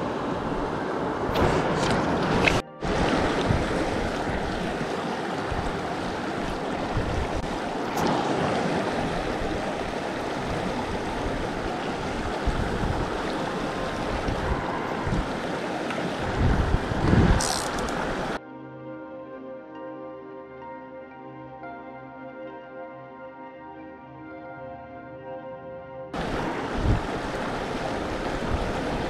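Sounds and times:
creek running over rocks: 0:00.0 - 0:18.4, 0:26.2 - 0:29.0
wind buffeting microphone: 0:00.0 - 0:18.4, 0:26.2 - 0:29.0.

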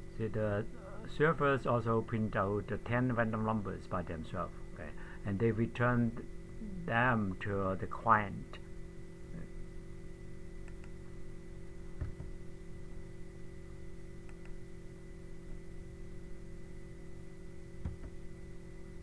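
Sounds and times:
steady electrical hum: 0:00.0 - 0:19.0
faint clicks: 0:10.6 - 0:11.0.

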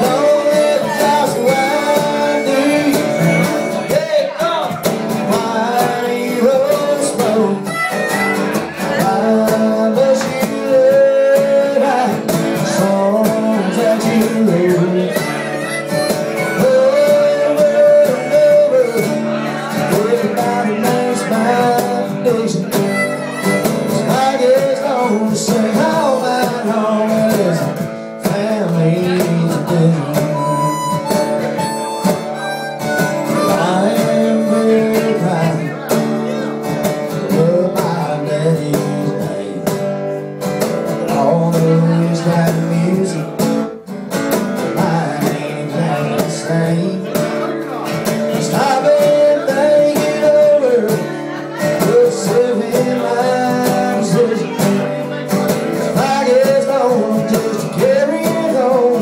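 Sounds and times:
harmonica playing lead: 0:00.0 - 0:04.4, 0:07.1 - 0:08.9, 0:14.7 - 0:19.5, 0:22.5 - 0:24.4, 0:30.2 - 0:35.3
cajon beat: 0:00.0 - 0:59.0
strummed acoustic guitar: 0:00.0 - 0:59.0.

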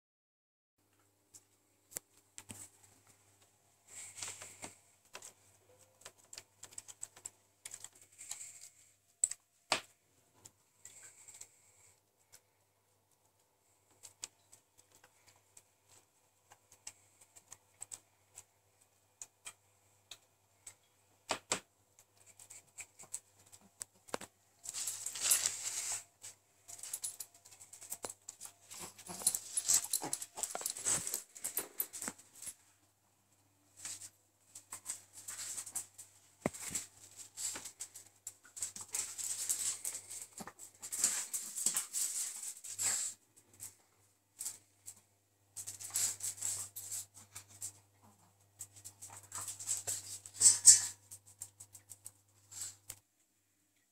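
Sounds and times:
claws clicking on tiles: 0:04.4 - 0:09.8, 0:26.7 - 0:32.5
dogs scuffling: 0:24.6 - 0:32.5.

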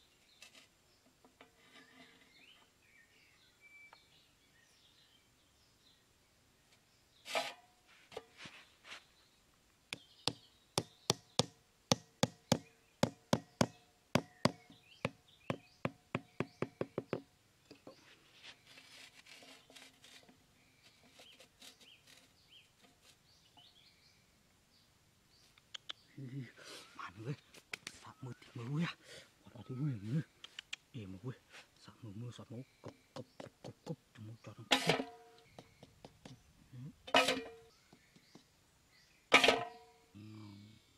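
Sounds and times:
scraping: 0:17.9 - 0:23.4, 0:34.6 - 0:36.5, 0:37.1 - 0:38.4.

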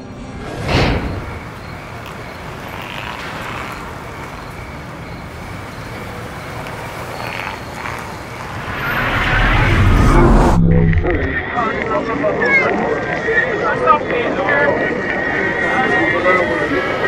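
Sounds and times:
vehicle passing close: 0:00.1 - 0:11.6
traffic rumble and hiss: 0:00.6 - 0:11.4.

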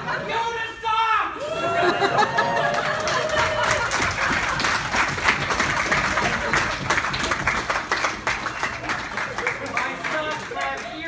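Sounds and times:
people clapping and applauding: 0:02.2 - 0:11.0.

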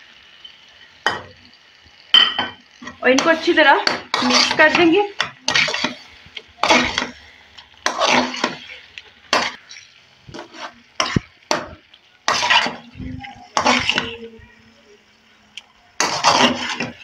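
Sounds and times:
metal spoon scraping a pan: 0:02.2 - 0:14.3, 0:16.0 - 0:17.0.

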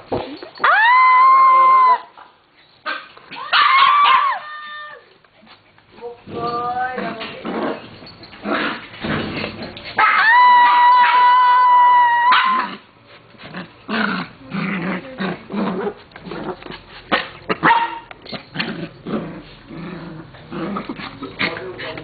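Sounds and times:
dogs barking and yipping: 0:02.8 - 0:04.4, 0:09.7 - 0:12.8, 0:15.9 - 0:19.6
dogs growling: 0:06.2 - 0:09.9, 0:12.5 - 0:22.0.

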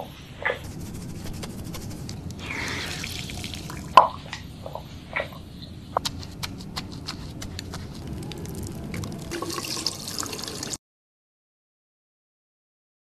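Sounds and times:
brush clicking in soapy lather: 0:00.6 - 0:04.0, 0:06.0 - 0:10.8
tap running: 0:05.9 - 0:10.8.

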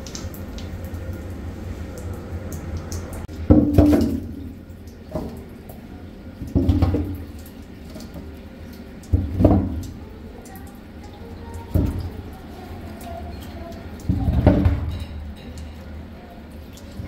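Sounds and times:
low hum: 0:00.0 - 0:03.4
water running from hose into pot: 0:00.0 - 0:17.0.

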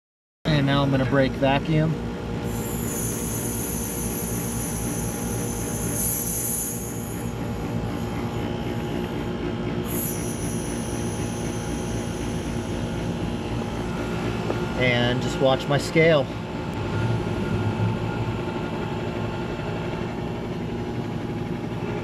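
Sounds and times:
steady low hum: 0:00.5 - 0:22.0
refrigerant hissing: 0:02.4 - 0:09.2, 0:09.8 - 0:15.0.

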